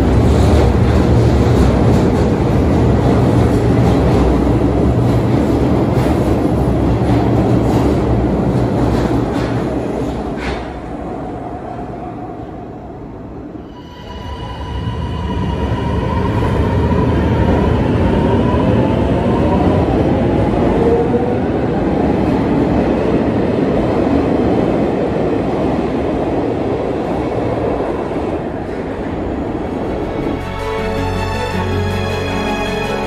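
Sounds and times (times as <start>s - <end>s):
train wheels rumbling on rails: 0.0s - 12.5s
train whine: 28.4s - 33.0s.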